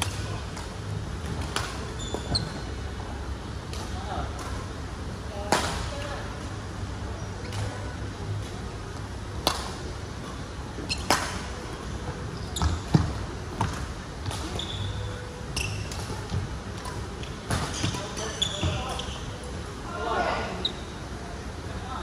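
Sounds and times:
sneakers squeaking: 1.6 - 2.8, 10.8 - 11.5, 12.1 - 19.6, 20.6 - 21.0.

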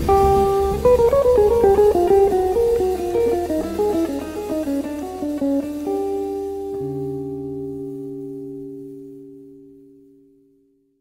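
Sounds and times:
low bass tone: 0.0 - 4.9
jazz electric guitar: 0.0 - 10.8.

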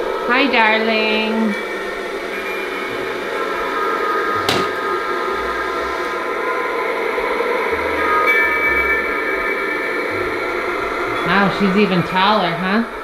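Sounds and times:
electric motor whirring: 1.6 - 9.1.

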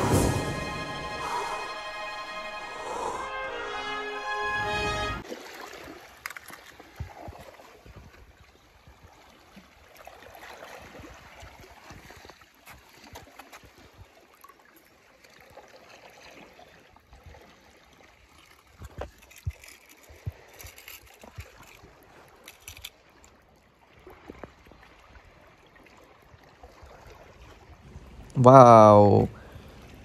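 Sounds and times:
small splashes: 5.2 - 27.8
shallow water sloshing: 5.2 - 28.2.

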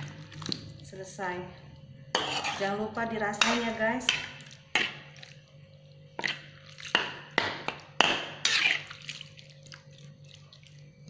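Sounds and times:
sauce sloshing: 0.0 - 0.8, 4.2 - 11.0
spatula knocking and scraping pan: 2.2 - 2.7.

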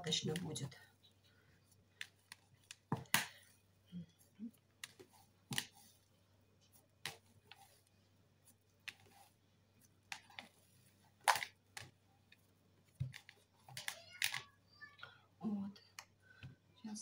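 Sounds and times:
dough slapping and clicking: 1.9 - 3.6, 4.5 - 6.1, 6.8 - 14.4.

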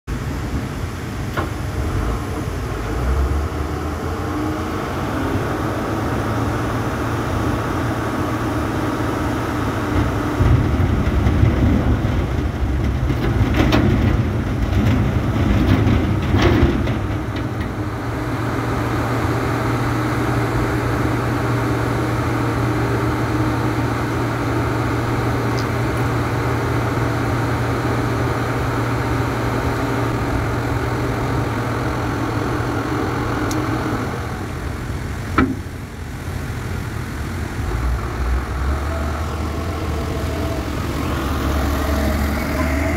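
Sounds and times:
truck diesel engine running: 0.1 - 42.9
sharp knocks: 35.4 - 35.6.

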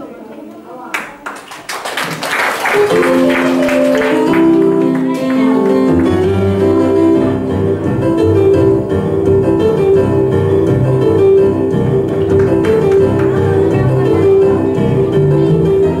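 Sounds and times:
instrumental melody of held notes: 2.8 - 16.0
low bass line: 6.5 - 16.0.

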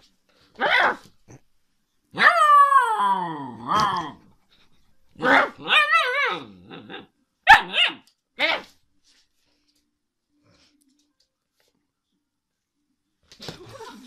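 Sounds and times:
puppy barking: 0.6 - 1.1, 2.2 - 2.5, 5.2 - 8.7
puppy howling: 2.2 - 4.2, 5.3 - 8.0
puppy yip: 7.5 - 8.6.

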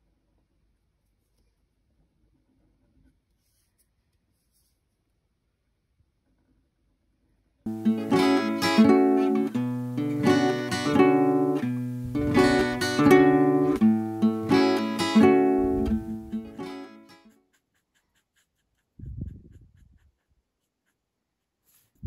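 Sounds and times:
folk acoustic guitar strumming: 7.7 - 17.2.

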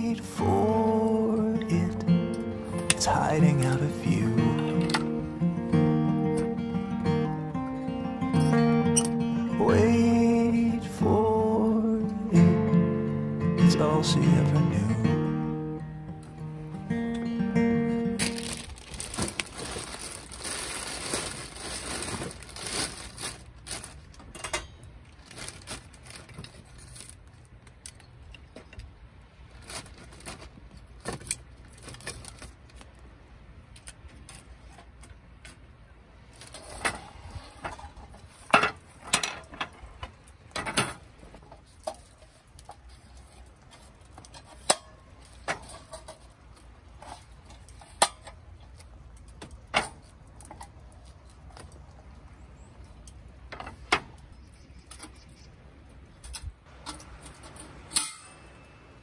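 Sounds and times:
plastic bag rustling: 0.0 - 12.0, 16.2 - 27.8, 29.4 - 33.0, 36.2 - 39.1
charcoal lumps clinking: 18.0 - 27.2, 56.7 - 58.7.

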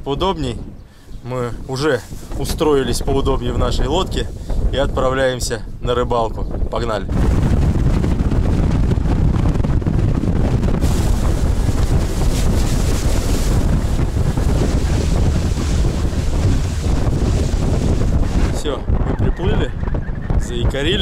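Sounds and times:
wind buffeting microphone: 0.0 - 21.0
water rushing past motorboat: 7.1 - 19.0.

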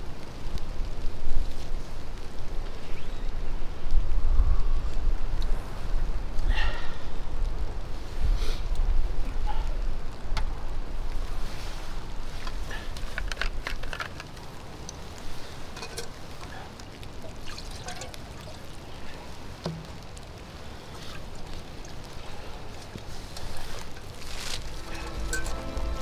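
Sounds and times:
rustling: 11.0 - 26.0
cookware clinking: 15.8 - 16.1, 25.0 - 25.7
liquid pouring into bowl: 17.3 - 18.7.

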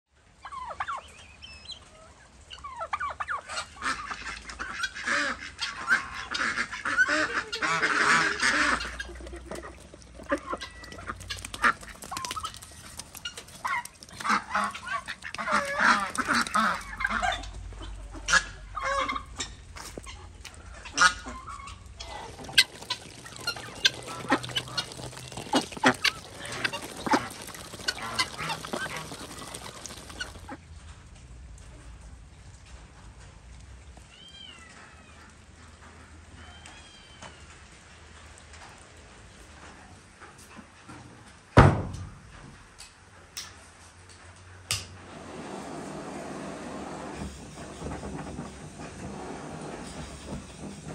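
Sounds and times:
ducks quacking: 3.4 - 19.4, 20.9 - 30.6
ducks pecking grain clicks: 7.6 - 17.5, 22.0 - 30.6
geese honking: 10.2 - 17.5, 22.0 - 30.6.

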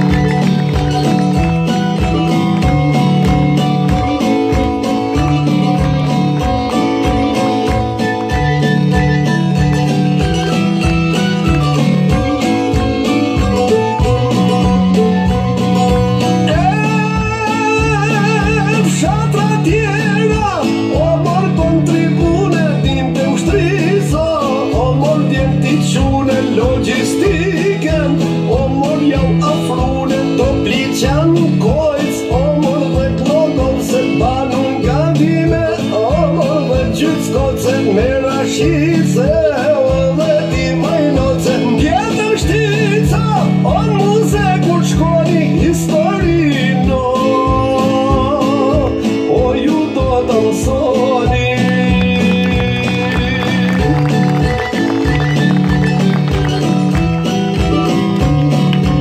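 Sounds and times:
amplified instrumental music: 0.0 - 59.0
man singing into a microphone: 16.2 - 54.8.

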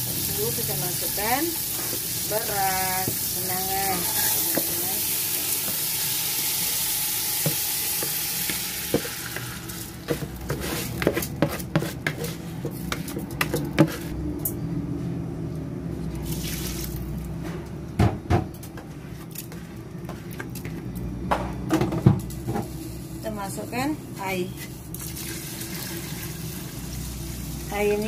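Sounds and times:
rice sizzling in hot oil: 0.0 - 10.9
spatula scraping pot: 0.1 - 6.8, 7.4 - 14.2.

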